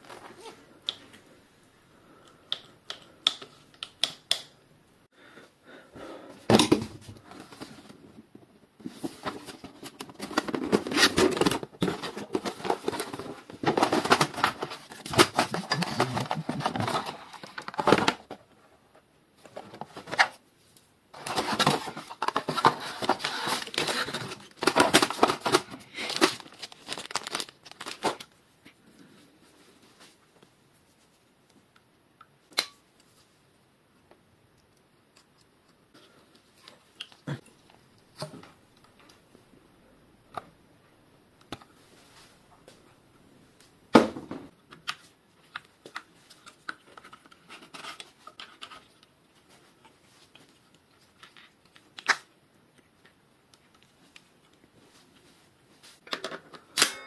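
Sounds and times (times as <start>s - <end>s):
wrapping crinkling and tearing: 21.2s - 28.4s.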